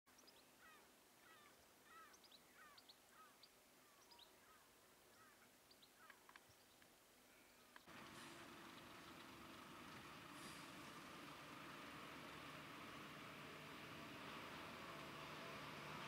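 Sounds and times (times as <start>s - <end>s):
faint bird chirps: 0.1s - 8.4s.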